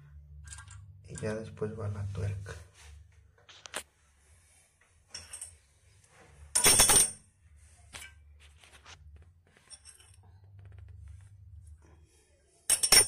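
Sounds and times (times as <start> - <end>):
metal hardware clinking: 5.1 - 5.6, 6.5 - 7.2, 9.6 - 10.2, 12.7 - 13.0
clattering rattle: 6.5 - 7.2.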